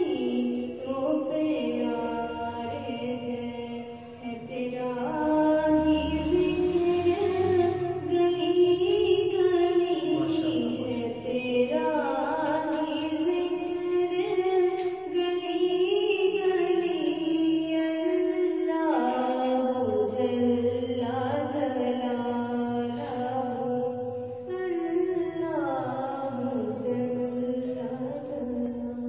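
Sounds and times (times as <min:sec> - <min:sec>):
girl singing a hymn: 0:00.0 - 0:29.0.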